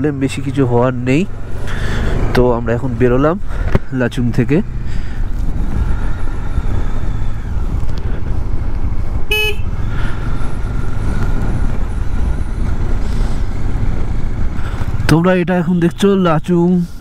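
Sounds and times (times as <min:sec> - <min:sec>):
motorcycle engine rumble: 0:00.0 - 0:17.0
motorcycle horn toot: 0:09.3 - 0:09.8.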